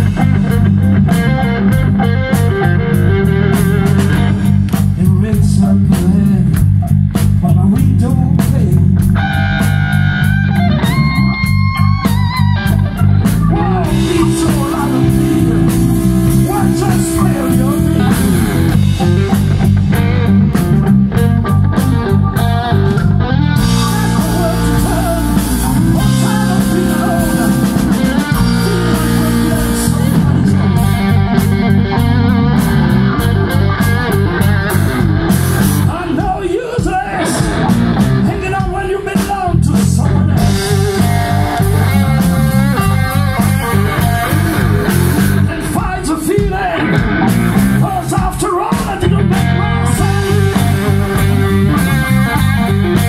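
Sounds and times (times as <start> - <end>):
blues-rock band playing: 0.0 - 53.0
electric guitar: 0.0 - 53.0
person singing: 10.8 - 19.4, 23.4 - 35.0, 35.8 - 47.1, 47.8 - 53.0.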